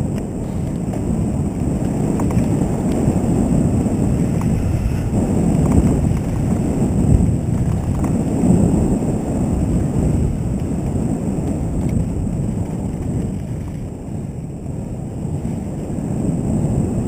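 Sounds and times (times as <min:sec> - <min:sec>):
bike clicks and rattles: 0:00.0 - 0:14.6
bike rumbling over dirt trail: 0:00.0 - 0:17.0
wind buffeting microphone: 0:00.0 - 0:17.0.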